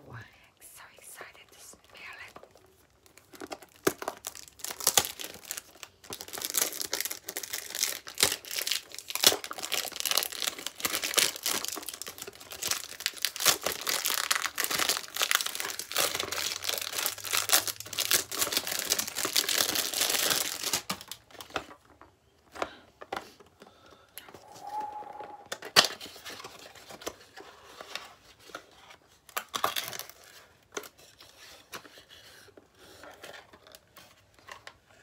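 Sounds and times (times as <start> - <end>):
cellophane tearing and crinkling: 2.1 - 21.7, 26.5 - 34.4.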